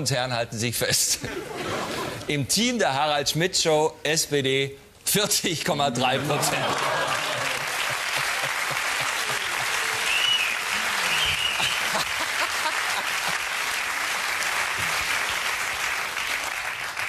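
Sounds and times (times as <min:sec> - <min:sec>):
studio audience applauding: 0:06.1 - 0:17.0
audience cheering: 0:06.2 - 0:17.0.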